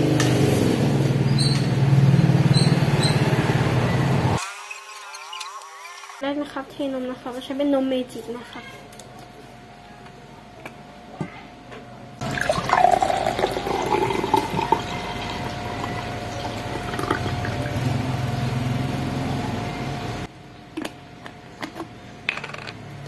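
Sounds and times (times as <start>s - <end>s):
milk pouring into a glass: 12.2s - 17.8s.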